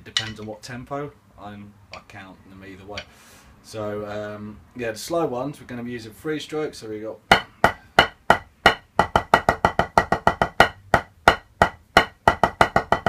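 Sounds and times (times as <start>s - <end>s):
drumsticks tapping a practice pad: 7.3s - 13.0s.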